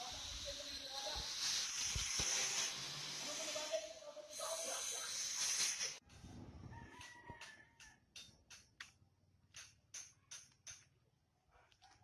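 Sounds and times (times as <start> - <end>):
angle grinder hissing: 0.0 - 6.0.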